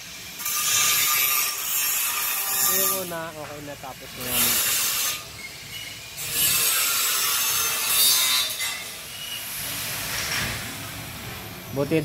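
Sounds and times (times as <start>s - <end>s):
angle grinder grinding steel: 0.3s - 9.5s.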